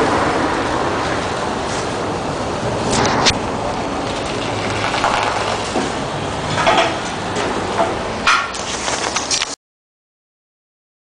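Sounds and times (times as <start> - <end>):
car engine drone: 0.0 - 9.2
street noise: 0.0 - 9.6.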